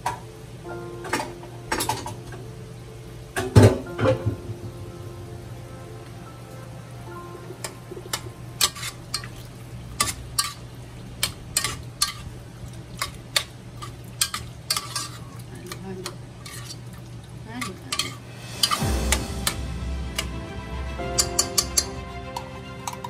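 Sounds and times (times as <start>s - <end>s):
rush of noise: 18.2s - 21.9s.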